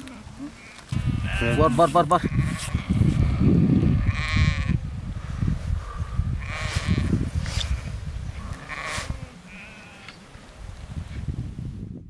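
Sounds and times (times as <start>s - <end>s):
sheep bleating: 0.0s - 4.8s, 8.5s - 10.2s.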